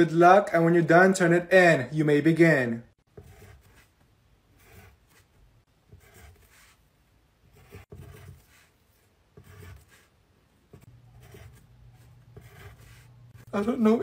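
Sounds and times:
pencil scratching on paper: 3.0 - 14.0.

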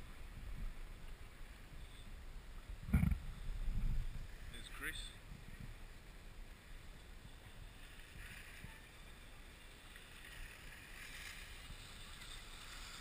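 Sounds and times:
wind rumble on microphone: 0.0 - 13.0
skis scraping over snow: 6.8 - 13.0.

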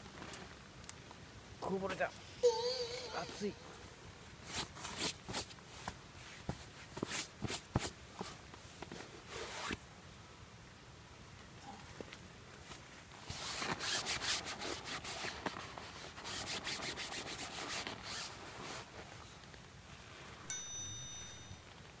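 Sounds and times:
fabric rubbing: 4.4 - 8.4, 13.3 - 19.2
light metallic ding: 20.5 - 21.6.

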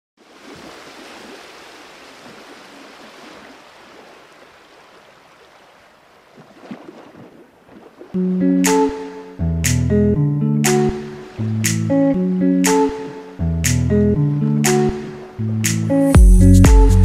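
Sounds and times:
surf on rocky shore: 0.2 - 9.1
sharp water splashes: 0.2 - 9.3.

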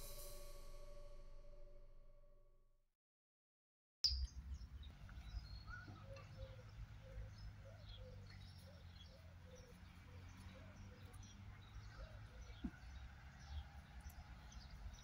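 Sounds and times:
birds chirping: 4.1 - 15.0.

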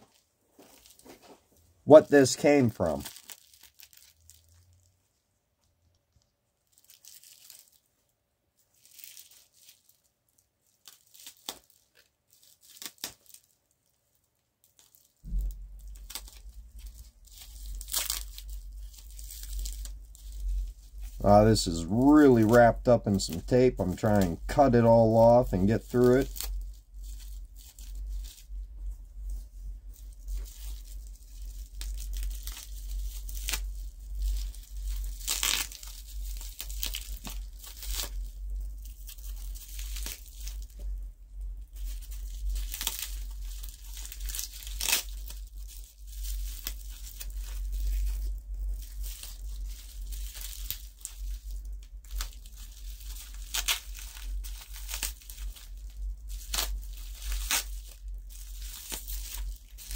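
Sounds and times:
plastic crinkling: 0.0 - 5.2, 5.9 - 59.9
packing tape ripping: 2.0 - 4.7, 6.7 - 7.9, 8.7 - 10.0, 10.6 - 13.6, 14.6 - 28.4, 30.3 - 40.7, 41.8 - 59.9
steady low hum: 15.2 - 59.9.

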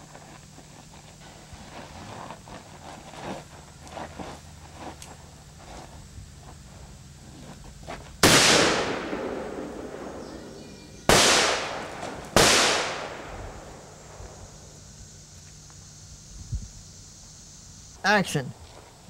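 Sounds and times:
handgun shots with echo: 8.2 - 13.4.

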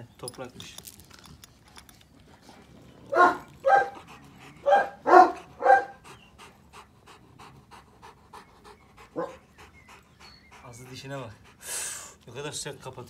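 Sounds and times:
dog panting rapidly: 2.4 - 12.3.

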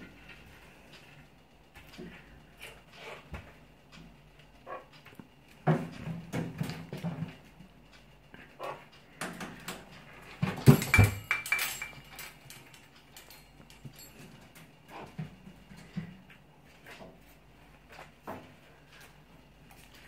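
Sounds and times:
clattering with ringing: 10.3 - 16.1.

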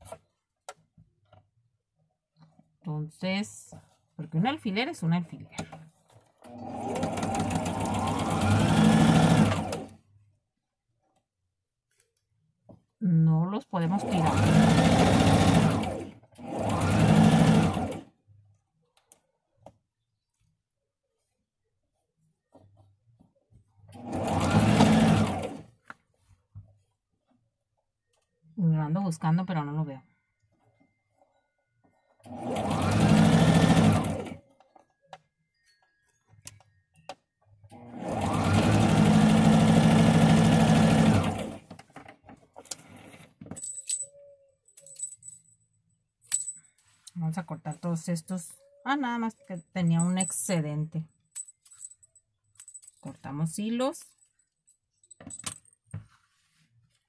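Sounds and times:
sewing machine stitching: 6.3 - 10.0, 13.8 - 18.1, 23.9 - 25.8, 32.2 - 34.4, 37.7 - 41.9.

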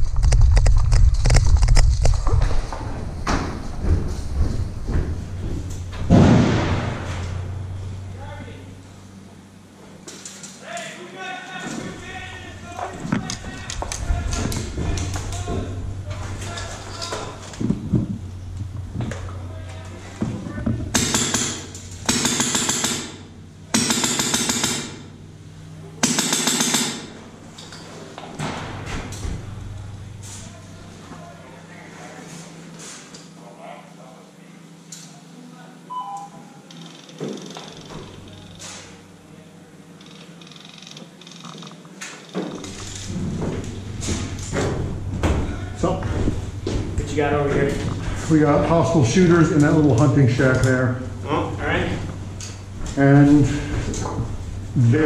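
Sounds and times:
running footsteps: 0.0 - 6.1, 11.6 - 20.9, 42.4 - 50.7
boots thudding on steel container: 2.8 - 7.2, 17.2 - 19.3, 43.1 - 48.2
gear rattling: 11.9 - 23.1
airsoft gun firing bursts: 21.0 - 25.0, 26.0 - 27.1.

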